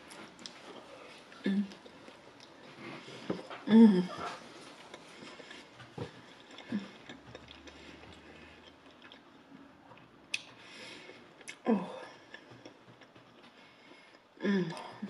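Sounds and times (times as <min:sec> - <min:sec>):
person chewing food: 0:00.0 - 0:14.9
mouth clicks and lip smacks: 0:10.0 - 0:10.6.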